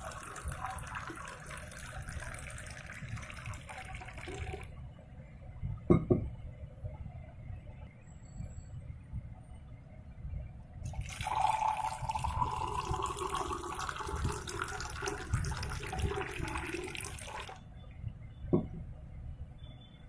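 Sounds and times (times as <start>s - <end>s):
juice pouring over ice: 0.0s - 4.7s, 10.9s - 17.6s.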